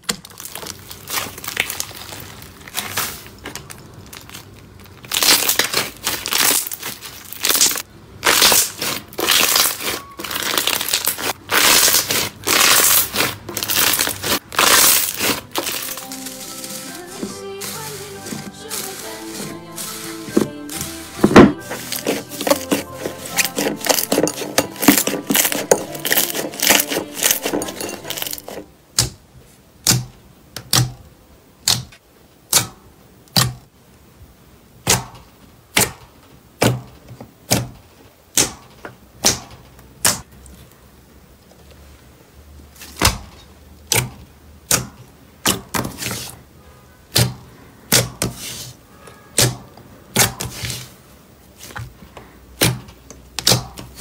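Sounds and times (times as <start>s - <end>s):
slime crackling under hands: 0.0s - 17.9s, 21.6s - 28.6s.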